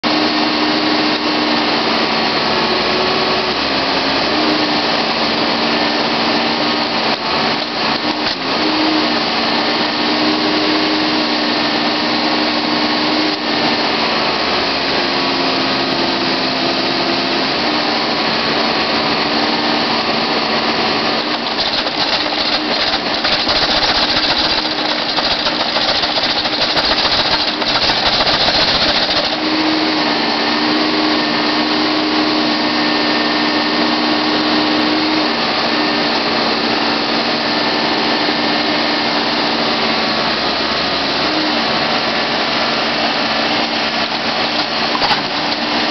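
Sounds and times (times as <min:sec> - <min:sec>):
diesel engine running: 0:00.0 - 0:45.9
bucket digging in dirt: 0:21.2 - 0:29.5.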